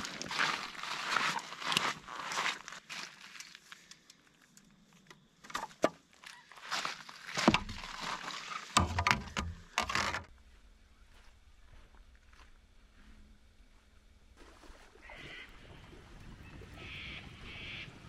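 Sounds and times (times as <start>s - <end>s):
footsteps crunching on gravel: 0.0s - 3.7s, 6.6s - 9.0s.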